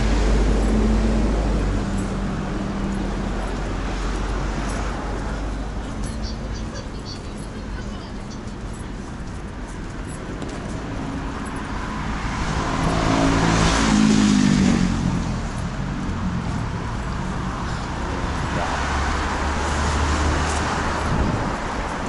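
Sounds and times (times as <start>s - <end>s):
city street traffic: 0.0s - 22.0s
vehicle passing close: 9.4s - 22.0s.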